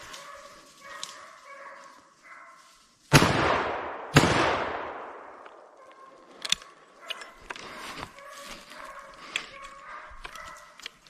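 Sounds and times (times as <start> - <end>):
rifle shots echoing: 3.1 - 5.7.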